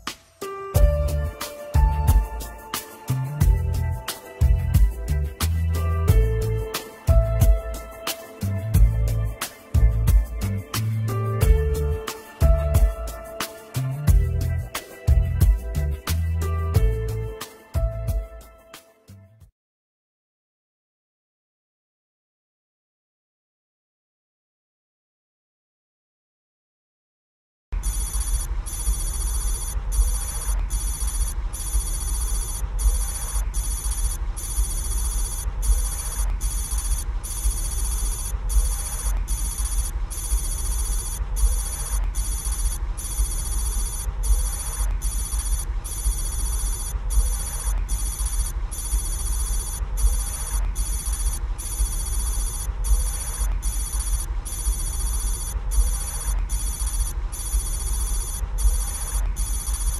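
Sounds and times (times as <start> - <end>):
steady deep hum: 0.0 - 18.5, 27.8 - 59.7
high electronic ringing tone: 27.8 - 59.9.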